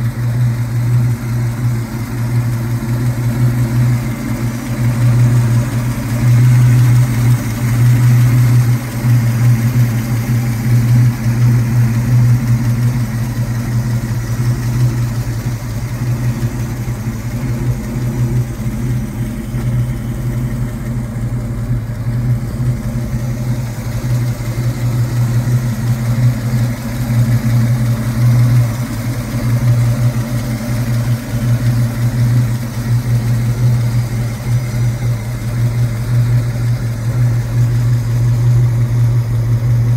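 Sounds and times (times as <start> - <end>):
vee eight engine idling: 0.0 - 39.9.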